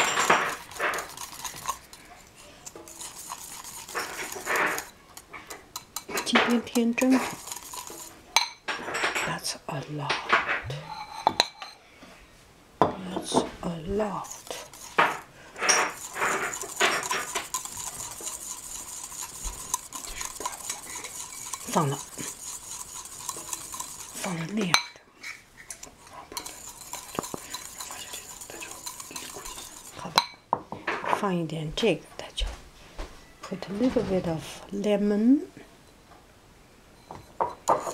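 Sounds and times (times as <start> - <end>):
spoon scraping a bowl: 0.0 - 11.8, 13.1 - 30.5, 37.0 - 37.9.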